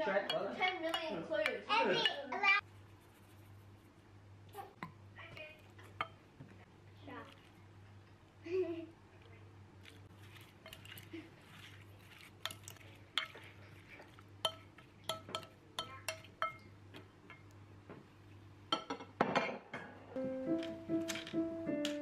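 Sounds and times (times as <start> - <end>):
spoon stirring vegetables in bowl: 0.0 - 3.5, 7.2 - 8.2, 9.8 - 17.6.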